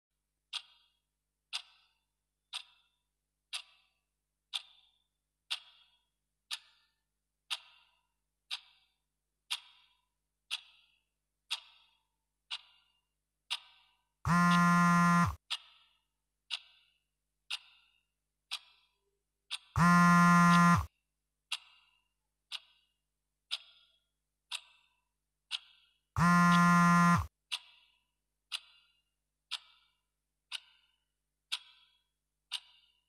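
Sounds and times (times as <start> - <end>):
clock ticking: 0.5 - 2.9, 3.5 - 6.8, 11.5 - 15.8, 19.5 - 20.9, 23.5 - 24.9, 25.5 - 27.9, 28.5 - 33.0
loud low buzz: 14.3 - 15.4, 19.8 - 20.8, 26.2 - 27.3.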